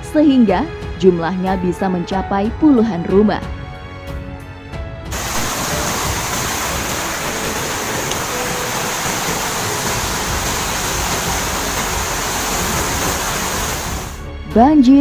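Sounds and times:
flood water rushing: 0:05.1 - 0:14.2.

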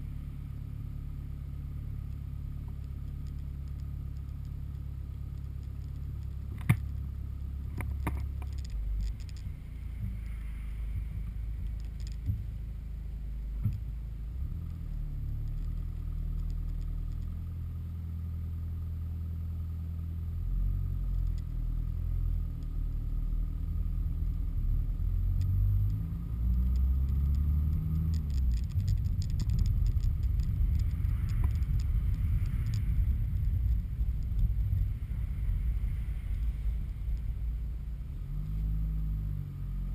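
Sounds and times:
car engine: 0:00.0 - 0:39.9
road noise: 0:00.0 - 0:39.9
sharp clicks: 0:25.4 - 0:34.8.

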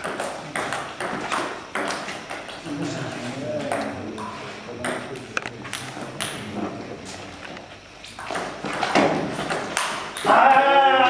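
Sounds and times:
table tennis ball hitting paddles: 0:00.0 - 0:02.6, 0:08.2 - 0:10.6.

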